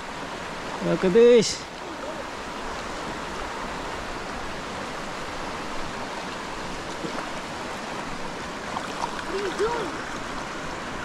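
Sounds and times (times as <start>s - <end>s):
river water rushing over stones: 0.0s - 11.0s.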